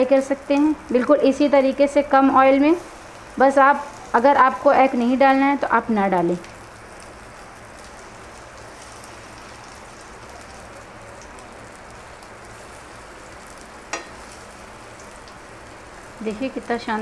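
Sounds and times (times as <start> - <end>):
food sizzling in pan: 0.0 - 17.0
metal spatula tapping pan: 13.9 - 14.2.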